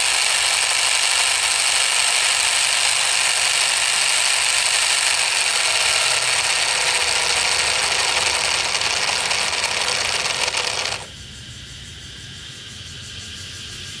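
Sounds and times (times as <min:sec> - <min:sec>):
model engine flywheel whirring: 0:00.0 - 0:11.2.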